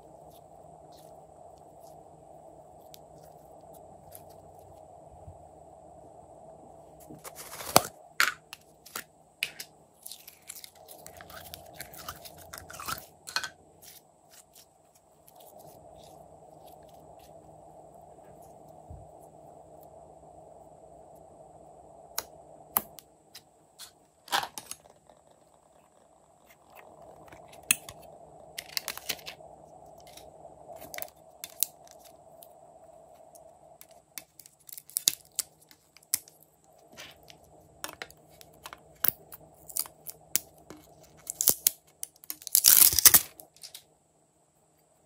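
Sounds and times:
faint steady hum: 0:00.0 - 0:45.0
slime squishing: 0:10.0 - 0:16.1.

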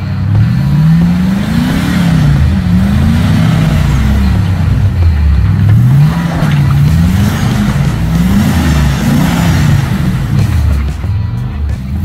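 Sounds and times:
engine revving up and down: 0:00.0 - 0:12.0.

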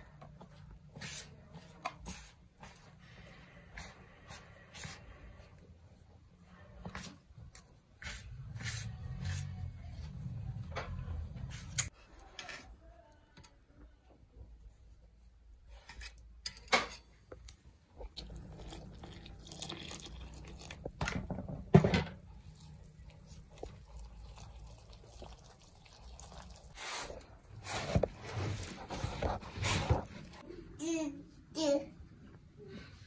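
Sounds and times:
working in liquid: 0:18.0 - 0:28.8
hand rubbing flour in plastic bowl: 0:25.1 - 0:30.4.

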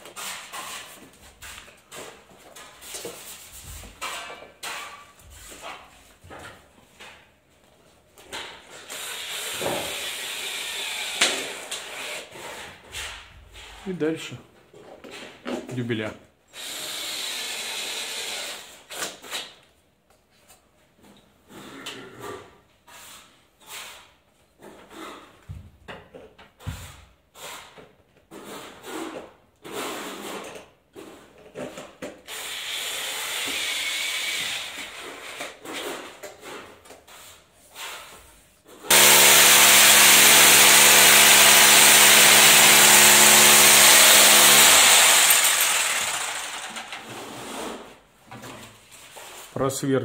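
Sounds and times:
power drill drilling into concrete: 0:08.9 - 0:12.3, 0:16.5 - 0:18.7, 0:32.3 - 0:34.9, 0:38.9 - 0:47.1.

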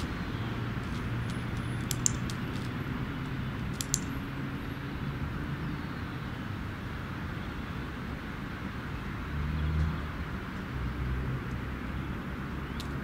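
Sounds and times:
dog-training clicker clicking: 0:01.3 - 0:02.7, 0:03.7 - 0:04.2.

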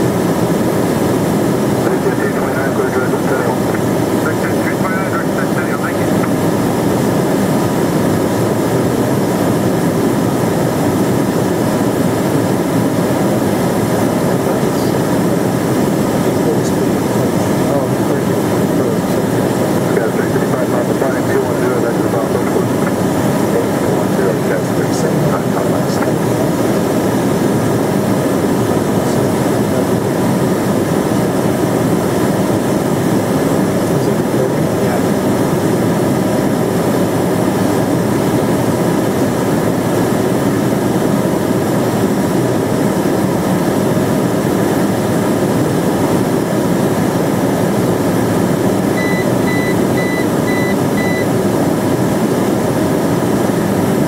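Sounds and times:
jet engines humming: 0:00.0 - 0:54.0
short high beeps: 0:49.0 - 0:51.3.

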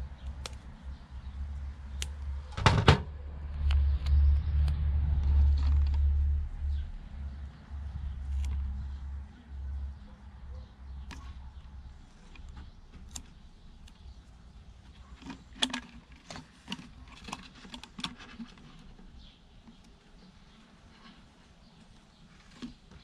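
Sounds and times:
plastic clicks taps and crinkles: 0:00.2 - 0:00.8
plastic rubbing: 0:14.8 - 0:23.0.

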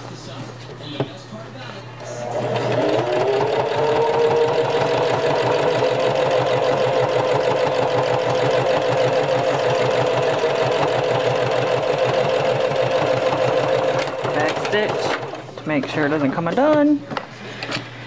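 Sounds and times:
sewing machine motor whine: 0:02.0 - 0:15.4.

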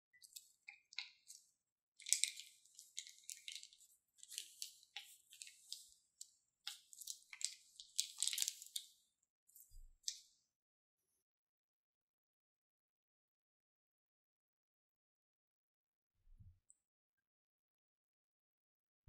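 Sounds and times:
plastic piping bag crinkling: 0:00.2 - 0:09.0.

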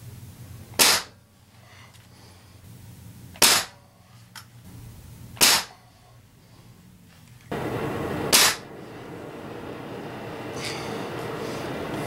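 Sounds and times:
air rifle shots: 0:00.7 - 0:01.2, 0:03.4 - 0:03.8, 0:05.4 - 0:05.8, 0:07.8 - 0:09.0.

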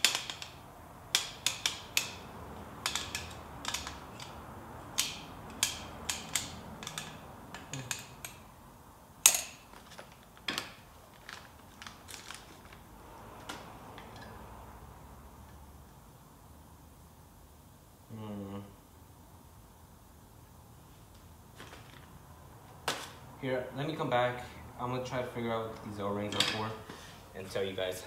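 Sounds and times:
metallic clicks and clinks: 0:02.8 - 0:08.5.

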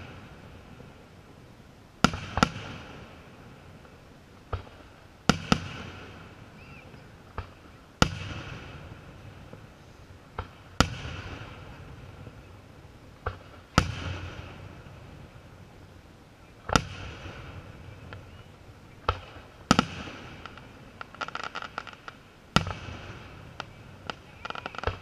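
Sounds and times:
small firework cracks: 0:02.0 - 0:09.7, 0:10.3 - 0:12.4, 0:13.2 - 0:15.0, 0:16.6 - 0:25.0.

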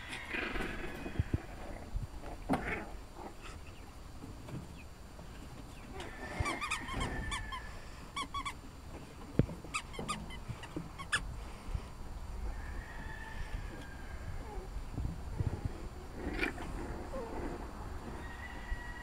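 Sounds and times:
puppies squeaking and yelping: 0:05.7 - 0:08.6, 0:09.6 - 0:11.3, 0:15.3 - 0:18.8
puppy whines: 0:14.3 - 0:19.0.

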